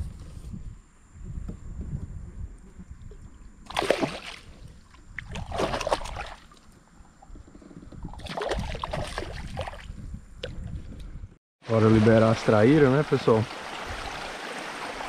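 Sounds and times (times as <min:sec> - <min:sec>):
water splashing: 0:03.6 - 0:06.7, 0:08.1 - 0:09.9, 0:11.7 - 0:15.0.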